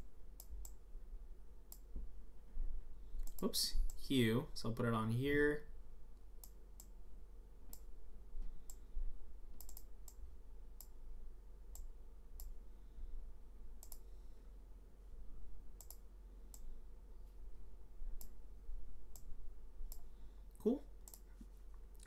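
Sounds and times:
faint low hum: 0.0s - 22.0s
computer mouse clicks: 0.4s - 0.8s, 1.7s - 1.9s, 3.2s - 4.0s, 6.4s - 7.0s, 9.6s - 10.2s, 10.8s - 11.0s, 13.8s - 14.1s, 15.8s - 16.7s, 18.2s - 18.4s, 19.9s - 20.1s, 21.0s - 21.3s.

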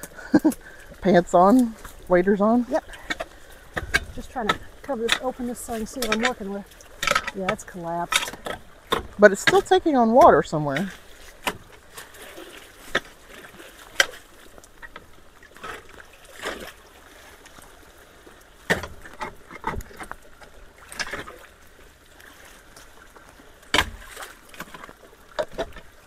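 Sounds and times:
small water splashes: 0.0s - 26.0s
rake scraping leaves in water: 1.1s - 14.4s.

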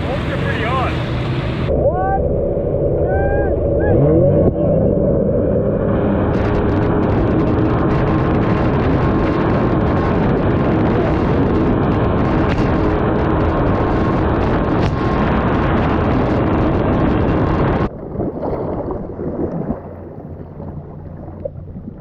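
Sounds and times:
jet ski engine running: 0.0s - 18.2s, 19.0s - 22.0s
low hum: 0.0s - 22.0s
rushing wind and spray: 3.9s - 22.0s
water splashing: 6.2s - 22.0s.

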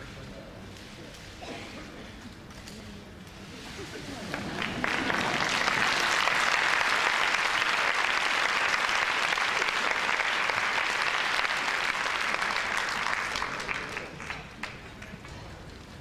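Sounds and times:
large audience applauding: 4.3s - 15.4s.

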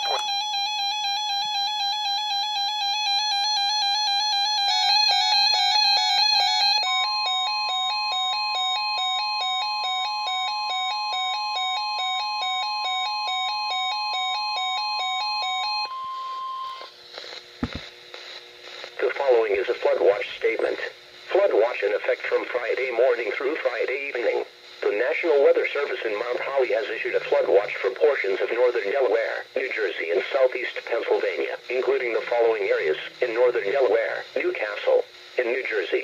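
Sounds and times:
two-pitch alarm beeping: 0.0s - 16.9s
knocks: 17.6s - 17.9s.

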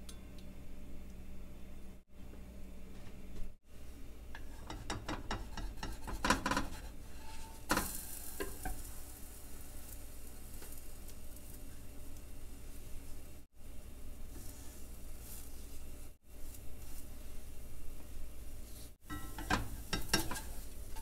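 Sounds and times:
spatula scraping frying pan: 4.4s - 10.8s, 19.0s - 21.0s
pancake sizzling: 4.4s - 13.5s, 18.6s - 21.0s.

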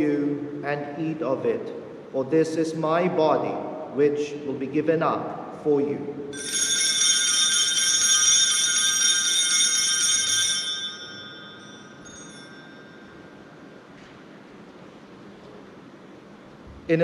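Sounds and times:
small bells jangling: 6.4s - 13.7s.

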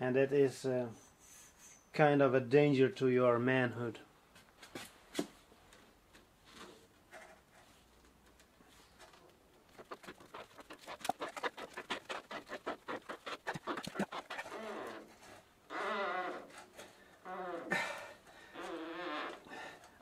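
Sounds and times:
handlebar grip creaking: 8.2s - 20.0s
grip squeaking on bar: 9.7s - 17.8s, 18.4s - 19.8s.

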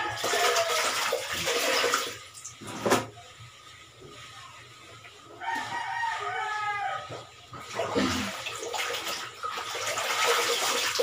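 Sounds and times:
water splashing in a basin: 0.0s - 2.7s, 7.5s - 11.0s.

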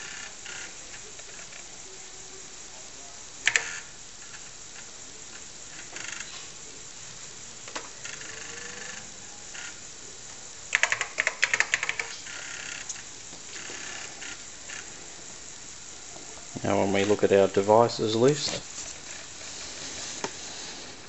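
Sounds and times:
floppy disk drive clicking and whirring: 3.4s - 6.6s, 7.6s - 14.9s
keyboard keystrokes: 10.7s - 12.1s.

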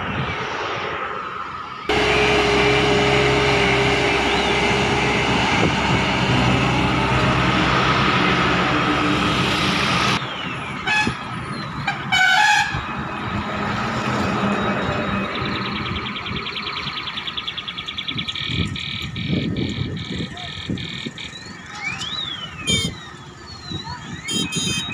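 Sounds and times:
road roller diesel engine running: 1.9s - 11.0s
vehicle horns tooting: 10.8s - 11.3s, 11.9s - 13.0s, 22.6s - 23.0s, 24.2s - 24.9s.

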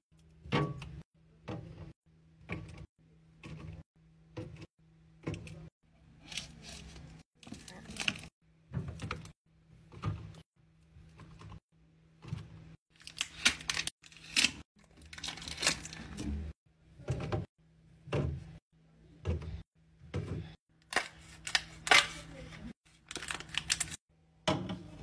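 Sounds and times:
plastic rustling: 23.0s - 24.0s.

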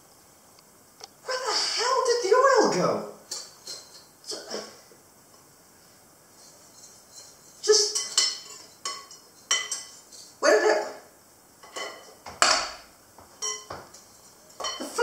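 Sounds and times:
utensils clinking on dishes: 3.3s - 4.1s, 6.4s - 10.4s, 11.6s - 15.0s.

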